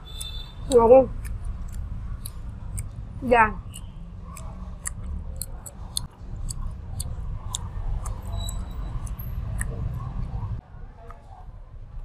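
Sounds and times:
person chewing with wet smacks: 0:00.0 - 0:11.3.

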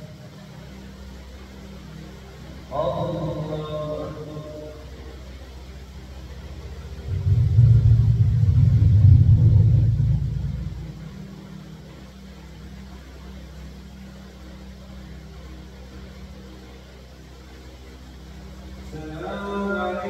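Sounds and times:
steady low hum: 0:00.0 - 0:20.0
loud low rumble: 0:06.7 - 0:12.1.

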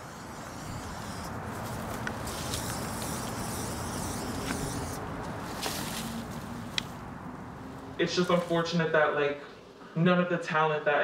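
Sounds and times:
spray paint can hissing: 0:00.0 - 0:05.9.

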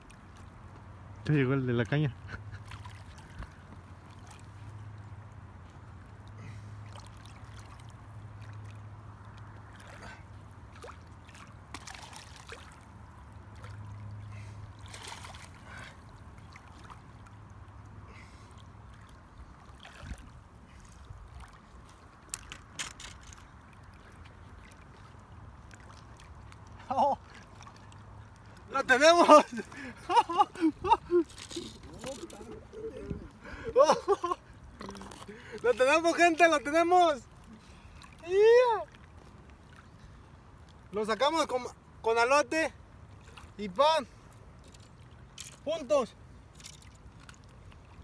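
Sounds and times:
fish splashing in water: 0:06.3 - 0:28.6.

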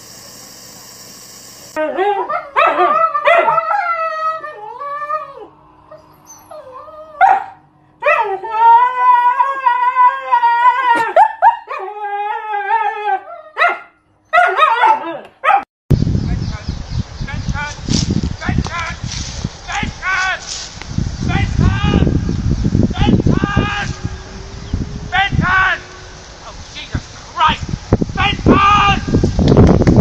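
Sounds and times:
dog yipping: 0:01.8 - 0:03.9, 0:06.0 - 0:08.3, 0:11.0 - 0:11.8, 0:13.5 - 0:15.6
dog howling: 0:01.8 - 0:13.7.

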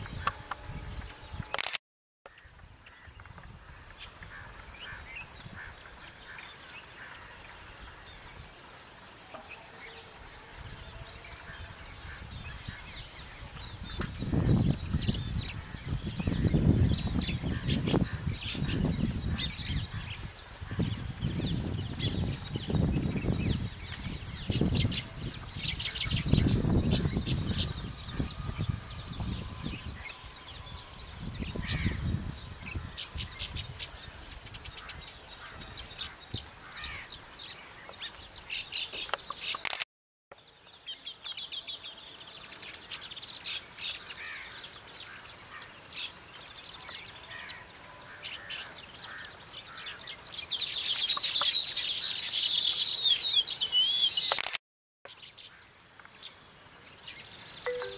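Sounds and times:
birds chirping: 0:55.1 - 0:57.9.

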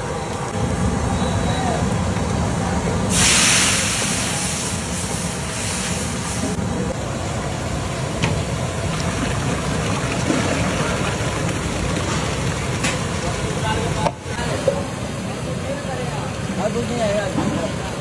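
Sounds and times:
water hissing in hot oil: 0:03.1 - 0:06.7.

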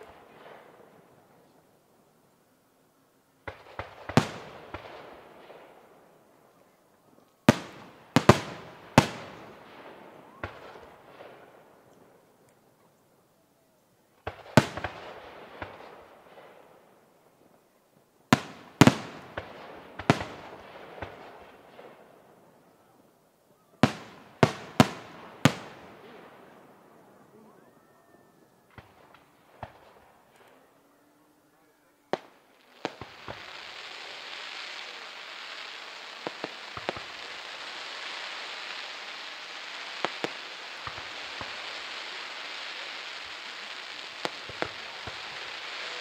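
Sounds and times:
firework shells bursting: 0:32.1 - 0:46.0.

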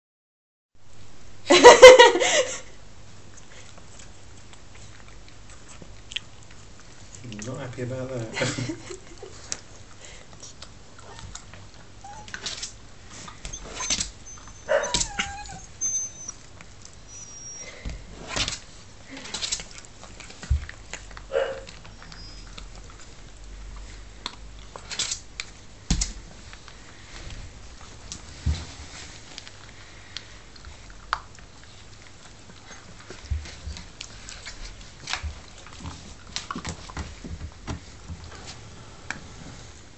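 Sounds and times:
puppies play-biting: 0:03.2 - 0:38.5
puppies yelping and squealing: 0:12.0 - 0:12.6, 0:13.2 - 0:17.8, 0:21.3 - 0:22.8.

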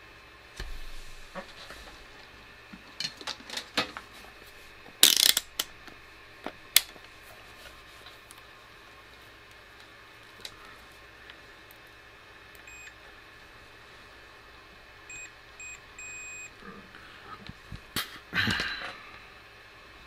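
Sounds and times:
faint electronic beep: 0:12.7 - 0:12.9, 0:15.1 - 0:16.5.

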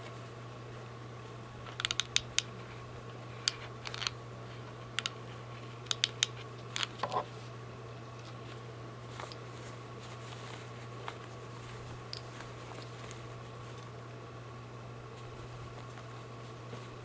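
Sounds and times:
steady low hum: 0:00.0 - 0:17.0
sharp clicks and snips: 0:01.7 - 0:02.5, 0:05.8 - 0:07.0.

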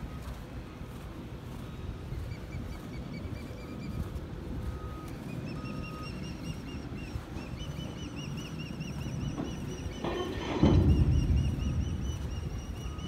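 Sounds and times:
bird chirping: 0:01.5 - 0:13.0
low rumble: 0:09.3 - 0:13.0.

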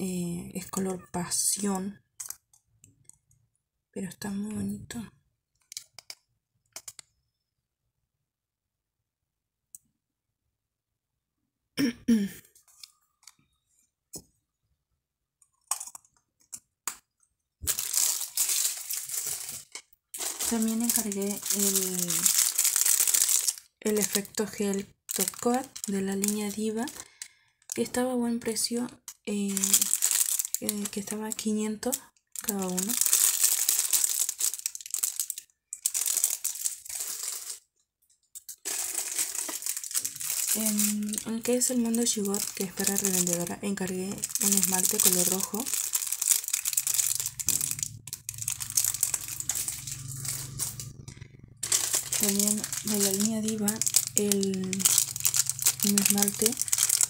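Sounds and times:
plastic bag crinkling: 0:02.2 - 0:03.1, 0:05.7 - 0:07.1, 0:17.0 - 0:37.7, 0:38.4 - 0:57.0.

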